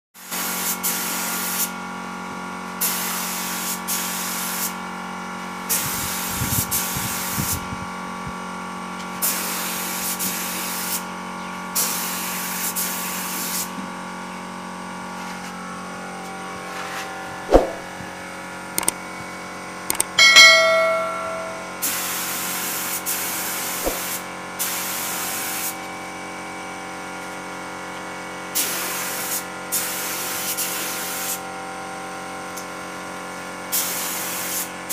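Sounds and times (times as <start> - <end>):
sharp knock: 17.5 - 17.9
brief ringing tone: 20.2 - 21.8.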